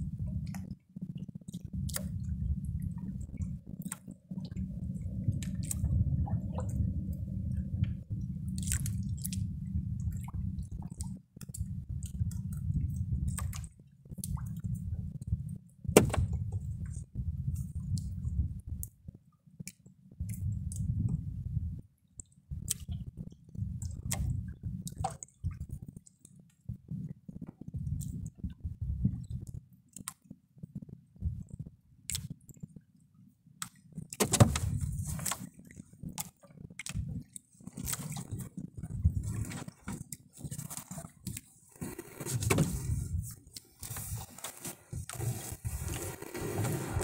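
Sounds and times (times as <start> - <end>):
low rumble: 0.0 - 19.1, 20.2 - 21.9, 34.5 - 35.2, 38.1 - 44.3
fishing net rustling and clicking: 37.6 - 47.0.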